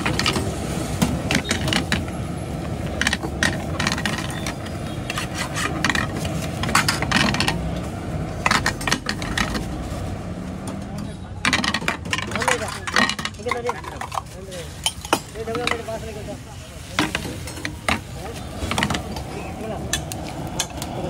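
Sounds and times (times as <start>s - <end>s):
metal spatula scraping frying pan: 3.0s - 7.4s.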